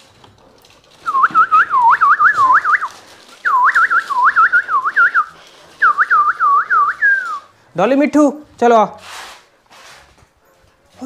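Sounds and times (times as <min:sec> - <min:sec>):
person whistling warbling notes: 0:01.0 - 0:07.5.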